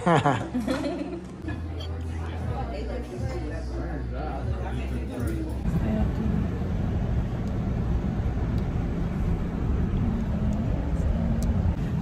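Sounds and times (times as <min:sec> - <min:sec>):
car engine and road noise: 0:05.6 - 0:12.0.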